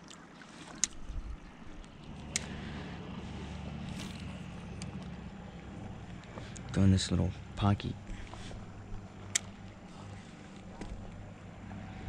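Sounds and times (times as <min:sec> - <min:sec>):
distant engine droning: 0:00.4 - 0:12.0
sharp clicks: 0:02.2 - 0:02.6, 0:09.3 - 0:09.6.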